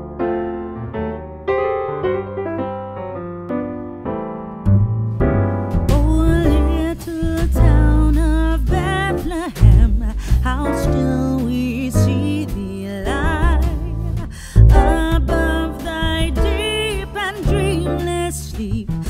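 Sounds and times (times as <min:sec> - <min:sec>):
electric piano notes: 0:00.0 - 0:09.4
bass and drums: 0:04.7 - 0:19.0
person singing: 0:05.9 - 0:19.0.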